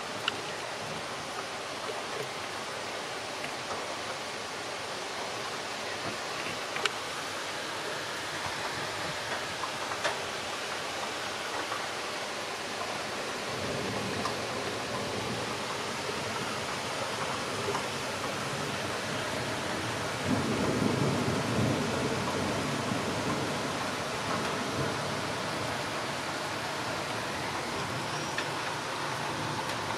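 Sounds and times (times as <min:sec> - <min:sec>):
heavy rain pouring: 0:00.0 - 0:29.9
faint raindrop ticks: 0:00.1 - 0:02.4, 0:03.4 - 0:04.2, 0:05.4 - 0:07.0, 0:08.4 - 0:12.0, 0:12.7 - 0:18.4, 0:19.3 - 0:25.2, 0:27.6 - 0:29.9.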